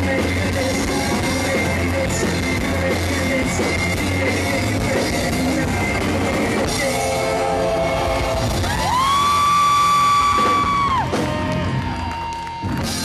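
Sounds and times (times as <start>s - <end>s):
person singing: 0.0s - 9.4s
bass: 0.0s - 13.0s
distorted electric guitars: 0.0s - 13.0s
drum kit: 0.0s - 13.0s.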